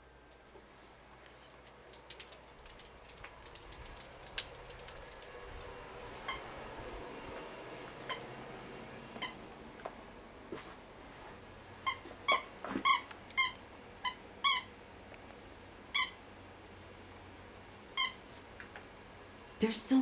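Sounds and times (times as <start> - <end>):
squeaky toy squeaks: 11.8 - 14.7, 16.0 - 16.2, 18.0 - 18.2.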